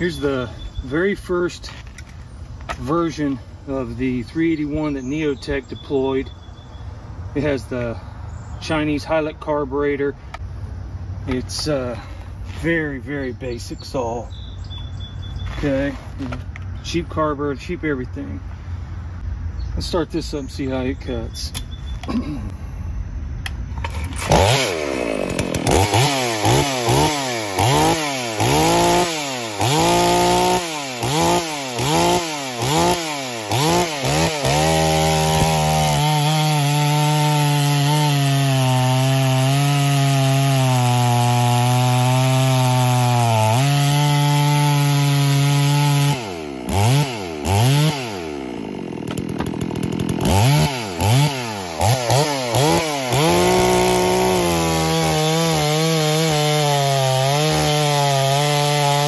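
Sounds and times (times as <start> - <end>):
chainsaw cutting log: 23.8 - 59.0
chainsaw revving: 23.8 - 59.0.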